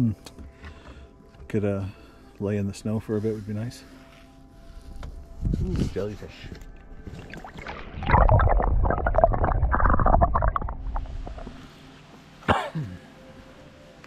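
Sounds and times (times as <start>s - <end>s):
water sloshing and gurgling: 6.8s - 11.8s.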